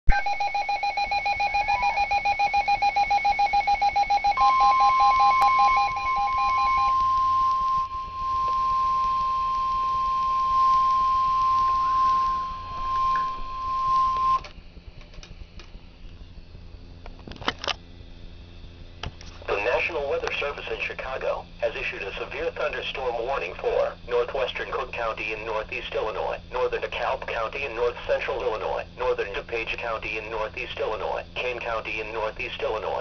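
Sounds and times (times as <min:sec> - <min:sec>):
rapid pulsing beeps: 0:00.1 - 0:14.4
steady alarm tone: 0:00.1 - 0:14.5.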